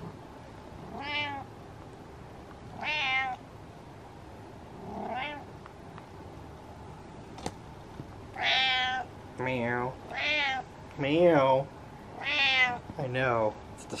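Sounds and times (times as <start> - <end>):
cat meowing: 0.9 - 1.5, 2.8 - 3.4, 4.8 - 5.5, 8.4 - 9.1, 10.1 - 10.7, 12.2 - 12.8.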